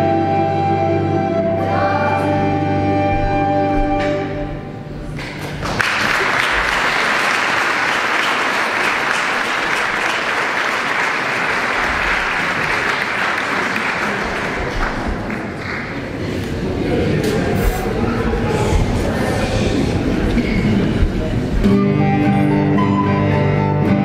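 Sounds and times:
audience applauding: 0:05.2 - 0:16.6.

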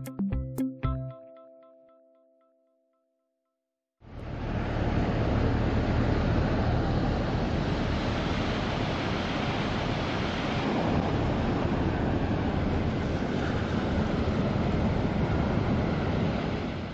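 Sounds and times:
ocean surf breaking: 0:04.1 - 0:16.9
wind rumbling on microphone: 0:04.1 - 0:16.9.

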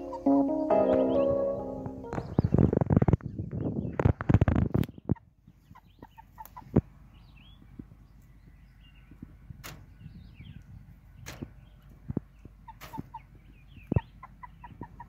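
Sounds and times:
hens clucking: 0:05.1 - 0:06.8, 0:12.4 - 0:15.0.

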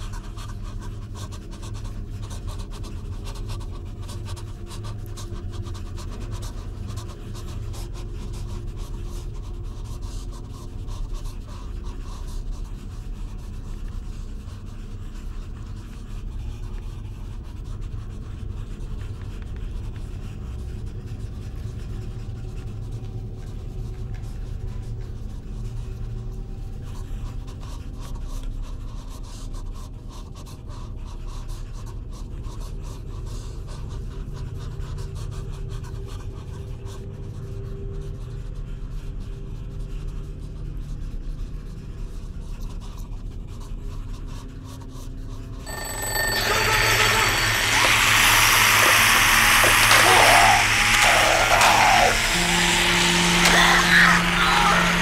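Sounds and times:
scratchy crackle: 0:45.7 - 0:55.0.

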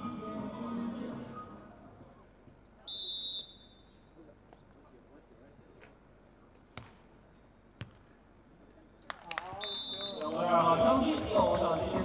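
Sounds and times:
referee's whistle blast: 0:02.9 - 0:04.0, 0:09.6 - 0:10.3.

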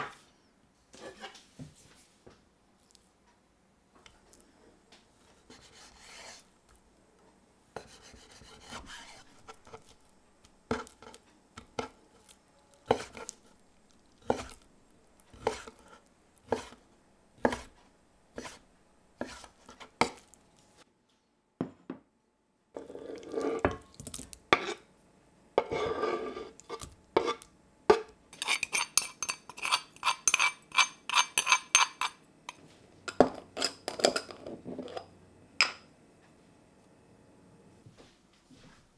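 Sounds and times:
knife chopping on wooden board: 0:15.4 - 0:15.8, 0:16.5 - 0:16.8, 0:17.4 - 0:17.8.

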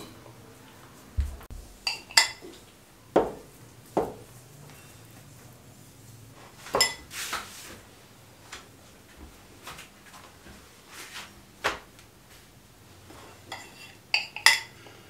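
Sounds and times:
metal spoon clinking glass bowl: 0:01.8 - 0:02.5, 0:06.8 - 0:07.0, 0:13.5 - 0:14.8.

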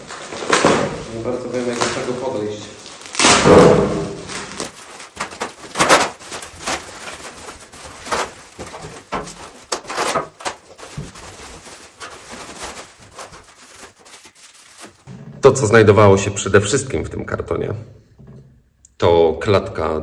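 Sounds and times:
packing wrap rustling: 0:00.0 - 0:15.1.

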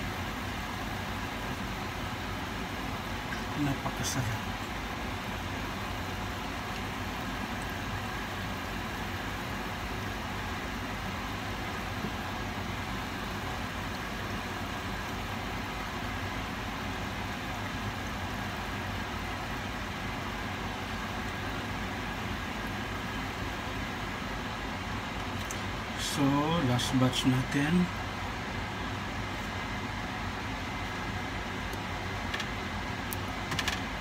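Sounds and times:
low even hum: 0:00.0 - 0:34.0.

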